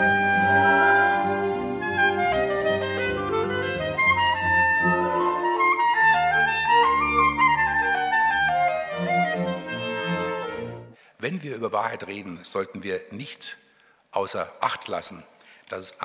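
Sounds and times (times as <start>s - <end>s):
solo clarinet melody: 0.0s - 10.9s
string orchestra accompaniment: 0.0s - 11.0s.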